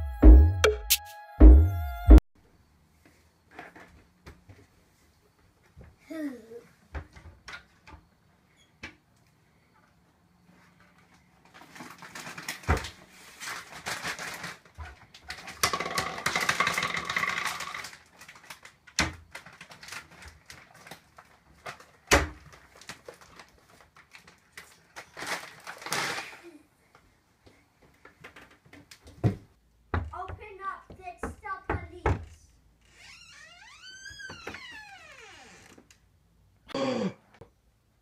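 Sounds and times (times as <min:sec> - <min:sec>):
cupboard doors knocking and clattering: 0:29.1 - 0:30.5.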